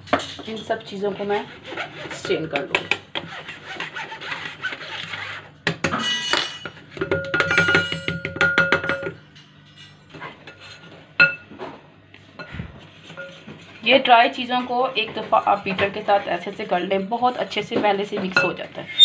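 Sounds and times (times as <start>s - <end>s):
sieve clinking against glass bowl: 6.0s - 9.1s.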